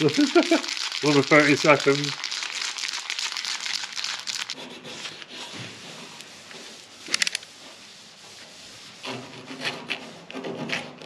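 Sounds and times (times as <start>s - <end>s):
aerosol can rattling: 0.0s - 4.6s
plastic bag crinkling: 0.0s - 4.6s.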